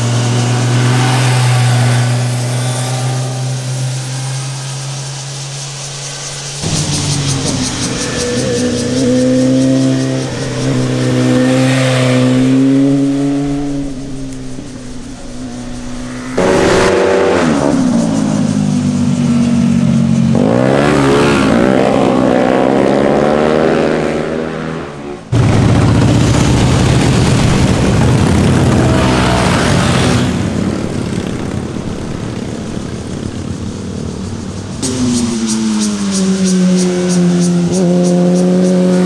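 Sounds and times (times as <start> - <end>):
sport bike engine revving: 0.0 - 5.5, 6.2 - 14.4, 15.3 - 39.0
motorcycles riding past: 0.0 - 39.0.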